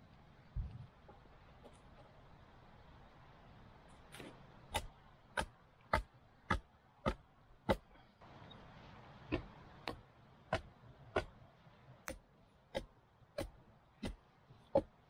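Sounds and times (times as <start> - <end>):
hatchet chopping wood: 4.7 - 7.9, 9.3 - 11.4, 12.0 - 15.0.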